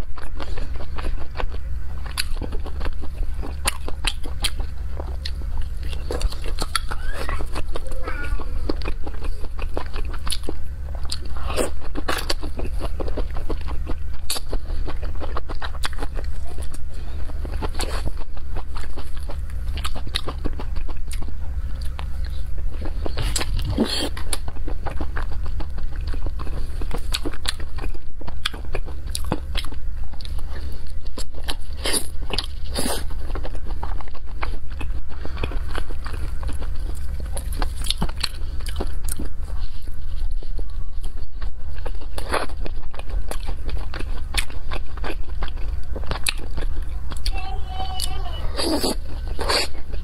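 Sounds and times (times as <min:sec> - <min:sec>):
biting and chewing food: 0:00.0 - 0:50.0
steady low hum: 0:00.0 - 0:50.0.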